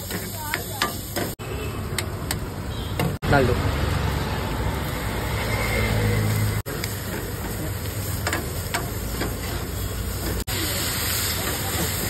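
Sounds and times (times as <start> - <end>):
food sizzling in a pan: 0.0 - 2.6, 3.4 - 12.0.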